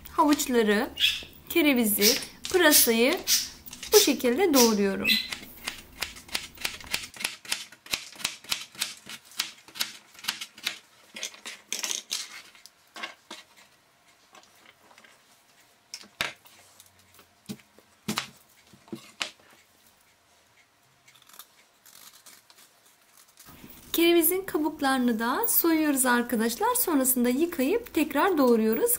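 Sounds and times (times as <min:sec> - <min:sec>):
cutter chopping carrots on board: 0:04.6 - 0:10.8.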